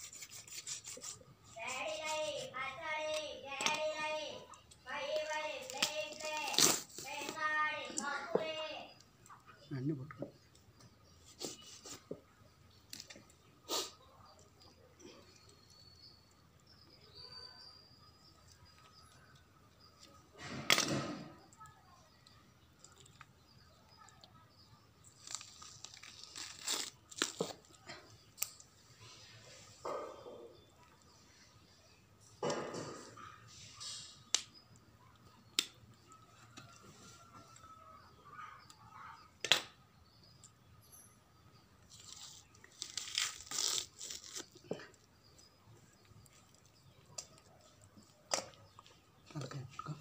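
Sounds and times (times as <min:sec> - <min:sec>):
chicken skin ripping and tearing: 0:05.2 - 0:07.4, 0:25.0 - 0:28.6, 0:41.9 - 0:44.8.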